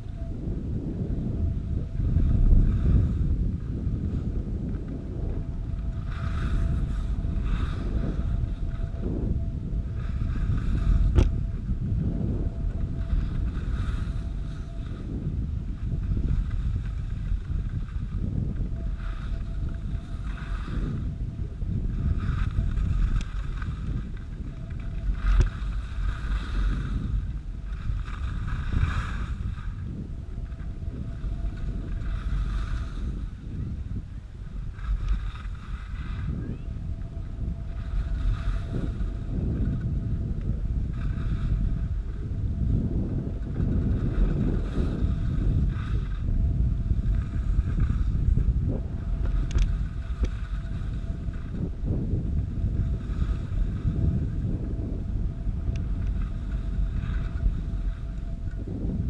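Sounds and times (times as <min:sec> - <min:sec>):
wind buffeting microphone: 0:00.0 - 0:59.0
skis scraping on packed snow: 0:02.0 - 0:36.6, 0:37.4 - 0:59.0
skis hissing over snow: 0:06.0 - 0:08.6, 0:13.0 - 0:15.2, 0:19.0 - 0:21.1, 0:25.1 - 0:29.8, 0:31.2 - 0:33.6, 0:34.6 - 0:36.5, 0:37.8 - 0:39.5, 0:43.7 - 0:46.3, 0:52.8 - 0:54.2.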